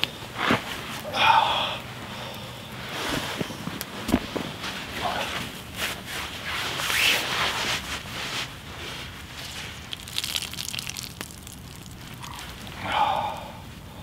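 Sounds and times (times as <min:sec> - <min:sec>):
campfire crackling: 0:00.0 - 0:07.1, 0:07.8 - 0:13.9
twigs and leaves crunching underfoot: 0:07.6 - 0:12.8.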